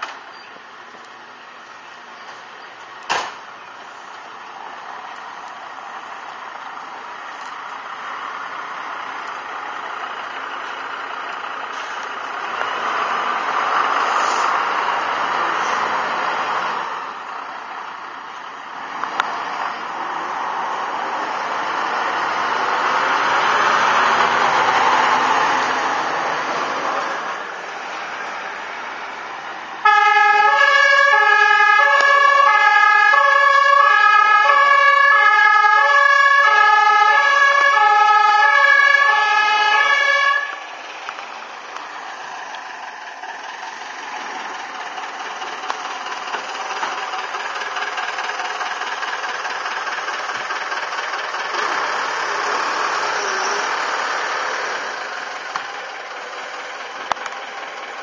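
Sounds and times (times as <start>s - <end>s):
diesel engine running: 0.0s - 58.0s
fire engine two-tone horn: 29.8s - 40.7s.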